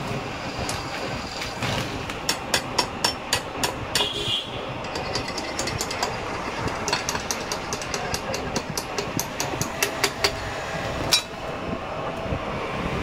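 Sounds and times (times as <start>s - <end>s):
steady rumbling background: 0.0s - 13.0s.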